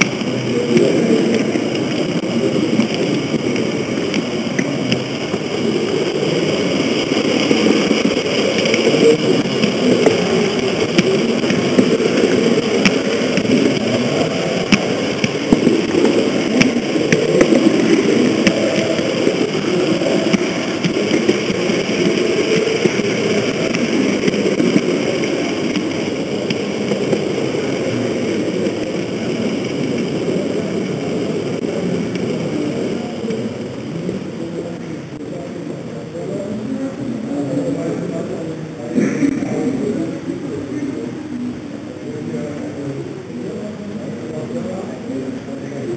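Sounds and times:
model train motor rumbling: 0.0 - 36.3.

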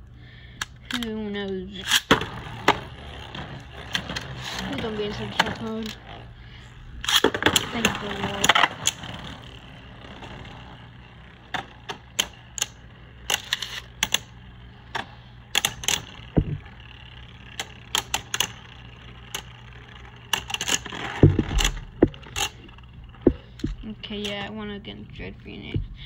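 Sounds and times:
spinning tops clacking plastic: 7.0 - 24.5
heavier knocks: 16.3 - 16.7, 21.2 - 22.3, 23.2 - 23.9, 25.7 - 26.0.

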